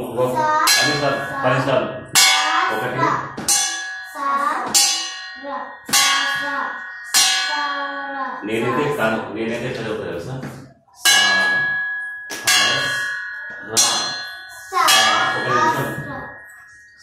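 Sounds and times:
steel plate clanging as bell: 0.7 - 8.0, 11.0 - 17.0.

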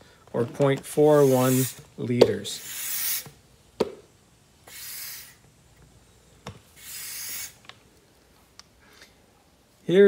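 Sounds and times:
plastic tube hissing rubs: 1.1 - 1.8, 2.6 - 3.4, 4.7 - 5.5, 6.7 - 7.7.

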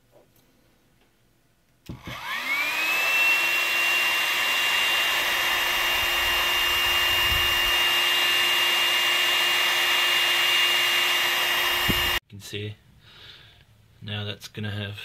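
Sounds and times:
hot-air gun whine and airflow: 1.8 - 12.2.

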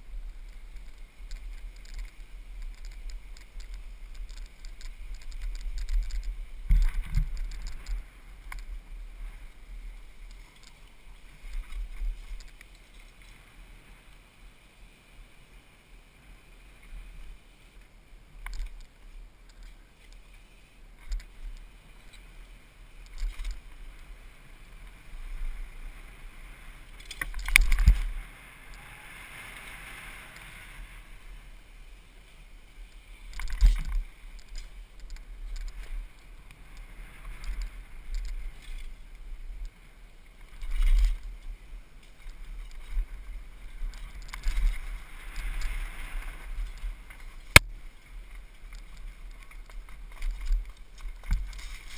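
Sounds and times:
bike rattling over ground: 0.0 - 8.9, 26.9 - 28.9
wind and tyres rumbling: 0.0 - 51.9.

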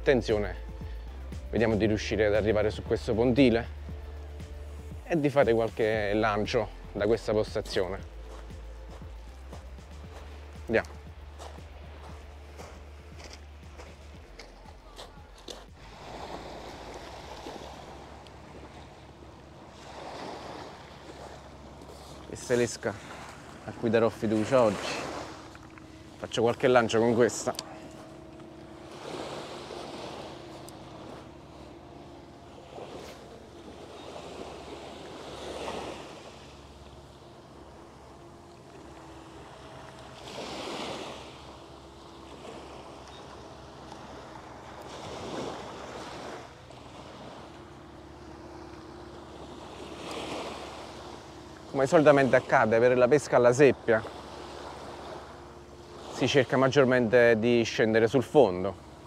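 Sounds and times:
faint low hum: 0.0 - 59.0
waves washing onto pebble beach: 28.8 - 59.0.

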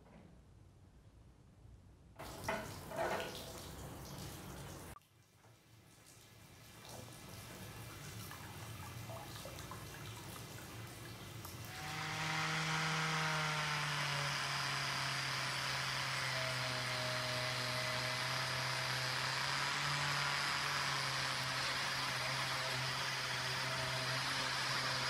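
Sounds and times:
power tool motor hum: 11.6 - 25.0.

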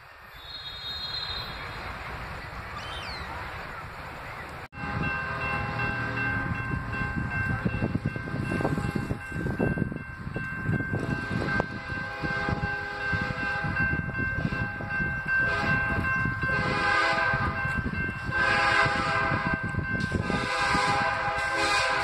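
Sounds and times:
steady outdoor hiss: 0.0 - 9.6
bird call: 0.3 - 1.8, 2.7 - 3.4
train horn: 4.8 - 6.2, 11.2 - 13.8, 14.4 - 17.6, 18.2 - 22.0.

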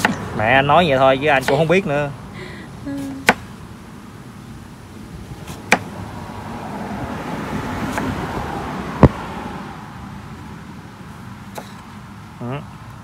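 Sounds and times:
sharp knocks: 5.7 - 5.9.

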